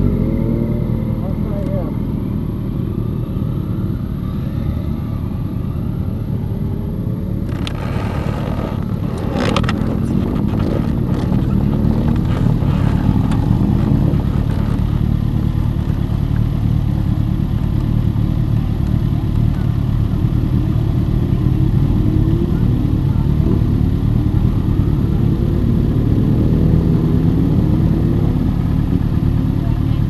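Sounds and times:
motorcycles riding past: 0.0s - 30.0s
steady engine hum: 0.0s - 30.0s.

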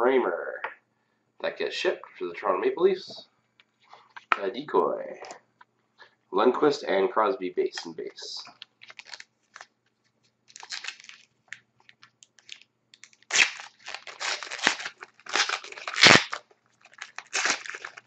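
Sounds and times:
wrapper crinkling and tearing: 8.5s - 9.7s, 10.5s - 18.0s.

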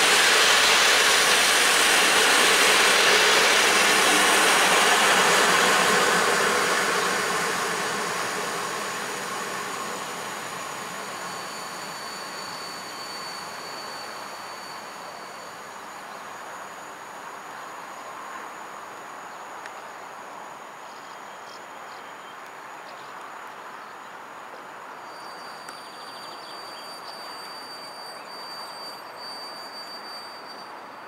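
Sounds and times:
electric train rolling: 0.0s - 16.6s, 25.1s - 31.0s.

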